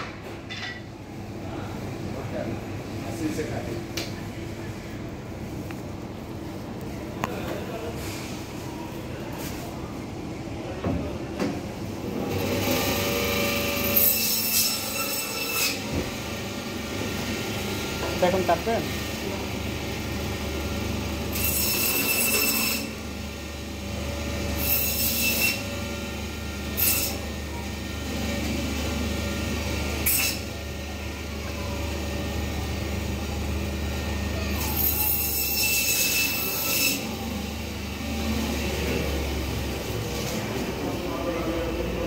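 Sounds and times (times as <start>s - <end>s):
saw blade screeching through bone: 21.3s - 22.9s.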